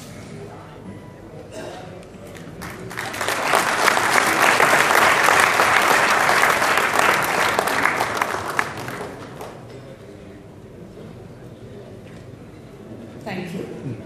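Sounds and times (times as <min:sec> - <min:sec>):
audience applauding: 0:02.3 - 0:09.7.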